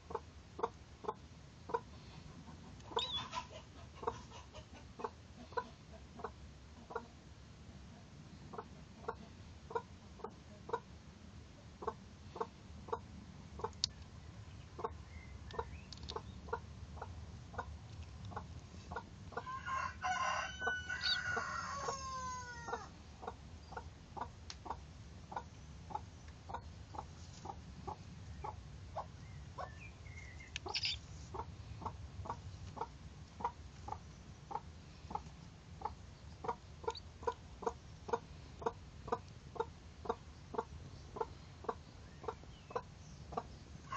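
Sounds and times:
chicken clucking: 0.1s - 7.2s, 7.9s - 10.9s, 11.8s - 13.8s, 14.8s - 17.7s, 18.3s - 43.9s
rooster crowing: 19.4s - 22.9s.

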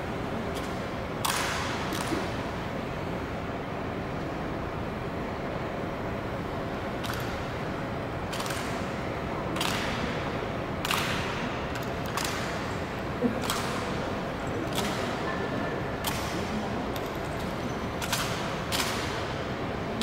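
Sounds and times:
steady hall hum: 0.0s - 20.0s
rifle clacks and hand slaps: 0.6s - 2.2s, 7.0s - 7.3s, 8.3s - 8.8s, 9.6s - 10.0s, 10.8s - 12.7s, 14.7s - 15.2s, 17.0s - 19.3s.

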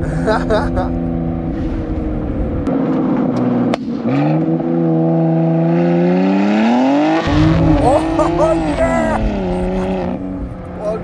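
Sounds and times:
car engine revving: 0.0s - 11.0s
exhaust cracks: 7.1s - 10.2s.

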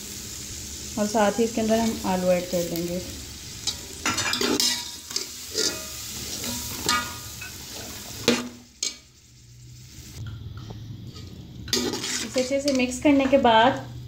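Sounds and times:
frying hiss: 0.0s - 14.0s
metal spoon scraping a pot: 3.6s - 7.6s, 11.1s - 13.0s.

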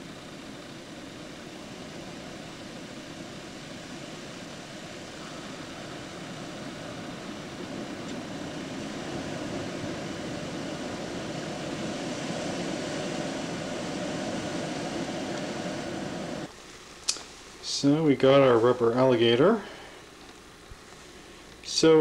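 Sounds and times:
hurricane wind roaring: 0.0s - 16.5s.

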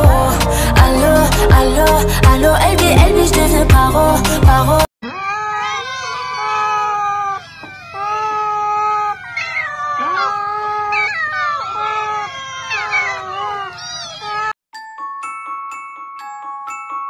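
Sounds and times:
many cats meowing: 5.0s - 14.6s.

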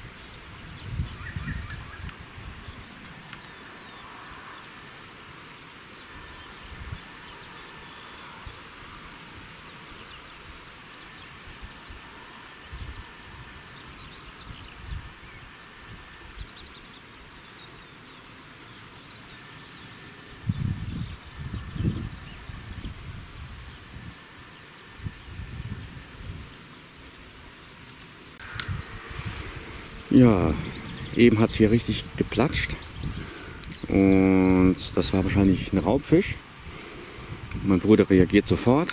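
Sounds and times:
steady outdoor hiss: 0.0s - 38.9s
bird chirps: 0.2s - 2.1s, 26.6s - 37.0s.

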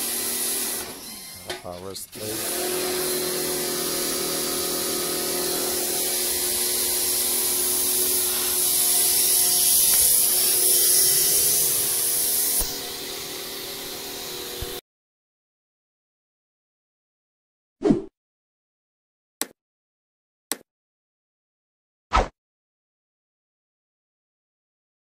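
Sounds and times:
pressure washer spraying water: 0.0s - 14.8s.

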